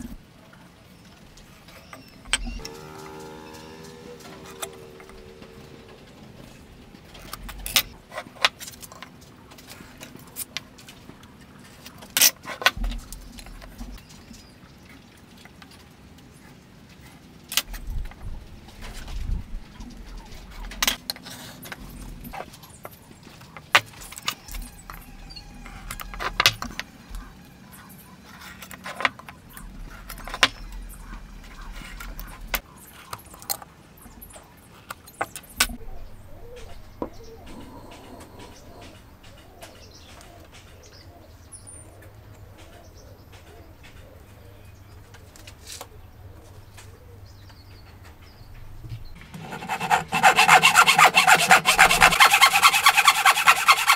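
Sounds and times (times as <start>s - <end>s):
birds calling: 21.7s - 53.9s.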